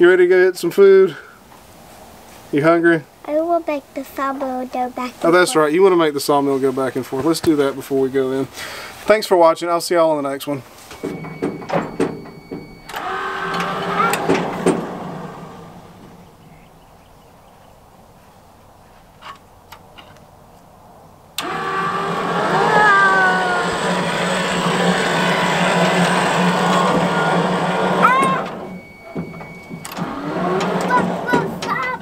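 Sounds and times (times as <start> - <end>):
sawmill power feed humming: 11.0 - 16.4, 21.4 - 32.0.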